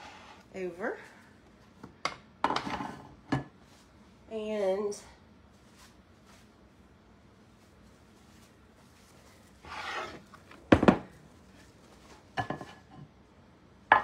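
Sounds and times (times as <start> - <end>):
dish scraping on counter: 0.0 - 0.4, 2.5 - 3.5, 9.6 - 11.0, 12.4 - 13.1
dishes clattering: 12.4 - 13.0.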